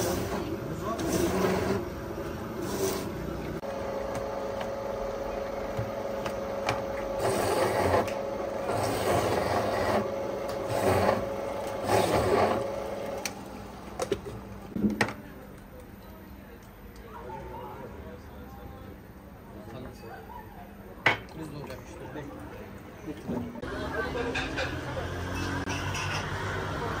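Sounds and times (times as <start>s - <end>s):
rasping scraping strokes: 7.2s - 12.7s.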